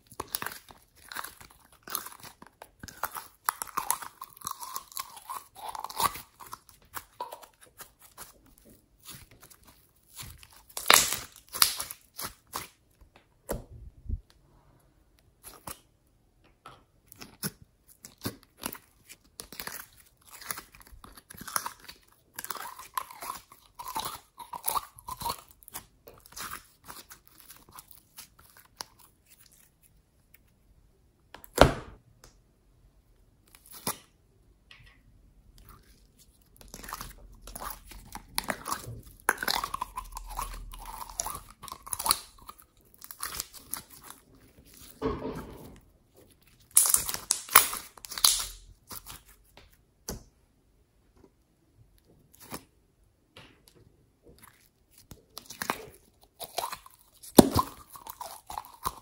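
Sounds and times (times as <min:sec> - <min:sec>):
slime crackling and popping: 0:00.0 - 0:12.9, 0:35.6 - 0:45.0, 0:46.3 - 0:49.4, 0:54.4 - 0:59.0.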